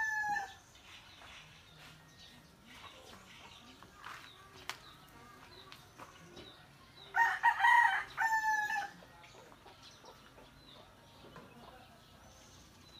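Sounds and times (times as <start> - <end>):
rooster crowing: 7.2 - 8.9.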